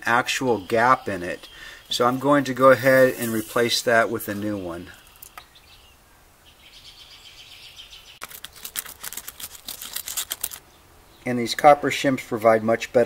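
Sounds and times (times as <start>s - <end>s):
faint high hiss: 0.0s - 8.2s.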